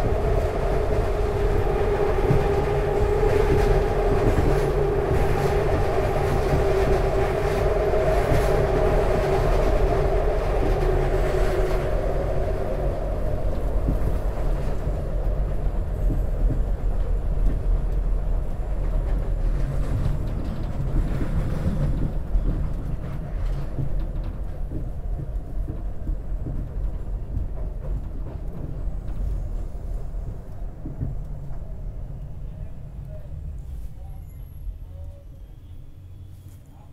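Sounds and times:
elevated train rumble: 0:00.0 - 0:36.9
train whine: 0:00.0 - 0:36.9.

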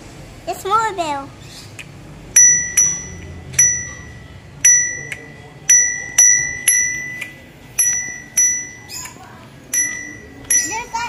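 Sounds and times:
bicycle bell dings: 0:02.4 - 0:11.0.

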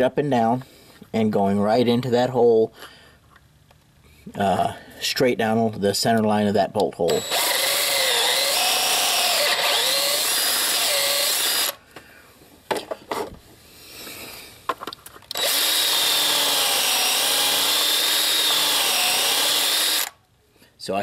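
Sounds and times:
power drill whining: 0:07.1 - 0:11.8, 0:15.3 - 0:20.2.

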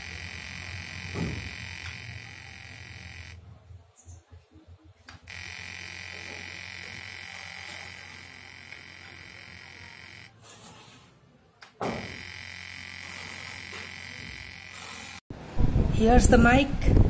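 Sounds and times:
electronic buzzing tone: 0:00.0 - 0:03.6, 0:05.1 - 0:10.6, 0:11.8 - 0:15.2.

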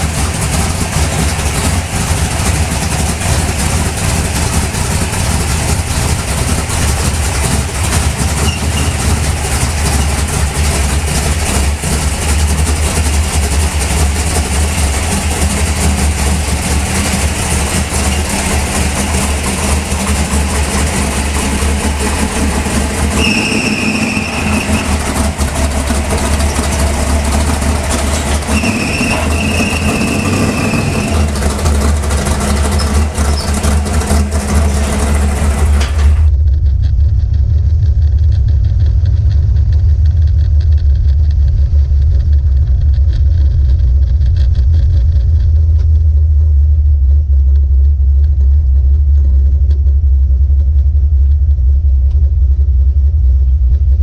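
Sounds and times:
car engine running: 0:00.0 - 0:54.0
high-pitched squeal: 0:06.2 - 0:12.9, 0:14.4 - 0:36.3.

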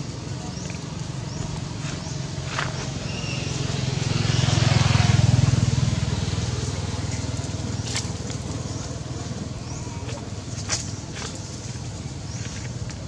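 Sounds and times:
vehicle engine passing: 0:00.5 - 0:12.4.

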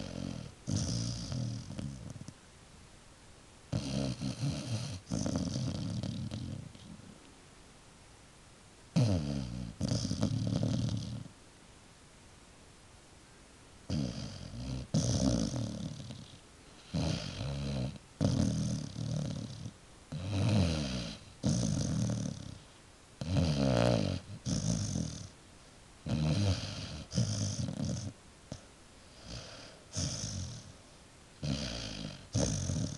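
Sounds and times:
dog snoring: 0:00.0 - 0:02.3, 0:03.7 - 0:07.1, 0:08.9 - 0:11.3, 0:13.9 - 0:25.4, 0:26.0 - 0:30.8, 0:31.4 - 0:32.9.

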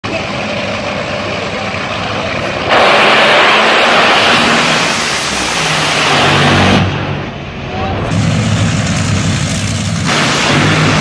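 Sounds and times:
dragster engine at full throttle: 0:00.1 - 0:11.0.

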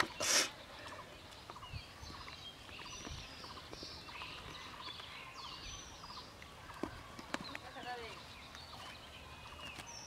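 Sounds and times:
birds chirping: 0:00.0 - 0:10.0.

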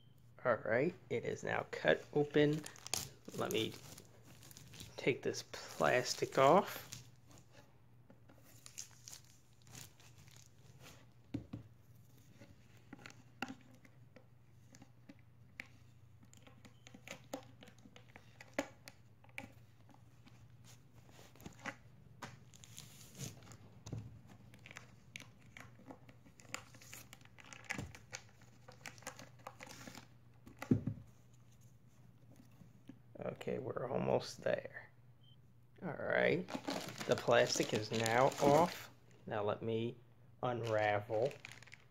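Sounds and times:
plastic wrapping crinkling: 0:01.9 - 0:07.4, 0:08.4 - 0:11.0, 0:36.5 - 0:39.0, 0:40.6 - 0:41.9.

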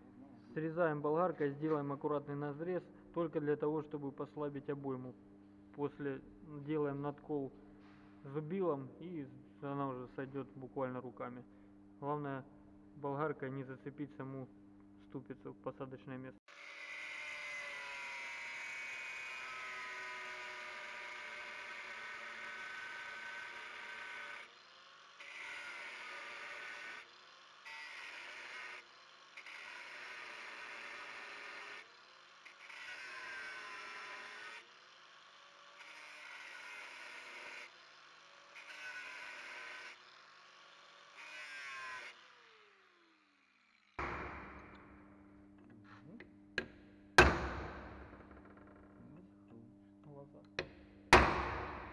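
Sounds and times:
angle grinder cutting steel: 0:16.5 - 0:45.0.

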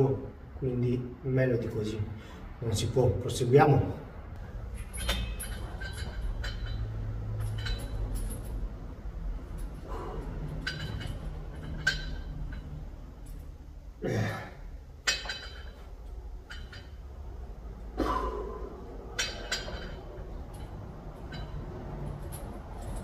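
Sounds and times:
weight stack clinking: 0:04.4 - 0:13.5, 0:15.0 - 0:17.2, 0:18.4 - 0:23.0.

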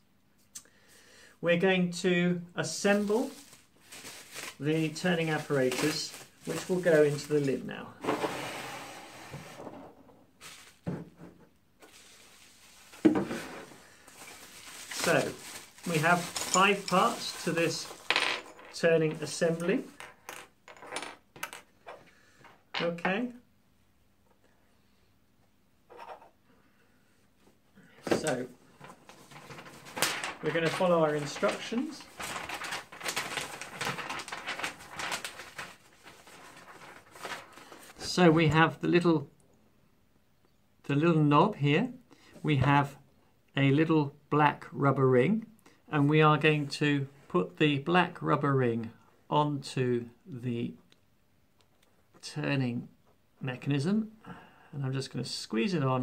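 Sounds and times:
plastic packaging rustling: 0:02.8 - 0:08.4, 0:10.4 - 0:11.1, 0:11.8 - 0:20.0, 0:28.1 - 0:38.0.

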